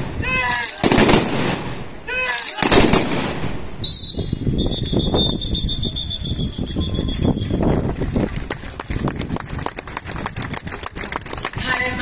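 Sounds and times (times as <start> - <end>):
dense crackling bursts: 0.0 - 3.5
squad shouting: 2.0 - 2.8
long high whistle blast: 3.8 - 7.5.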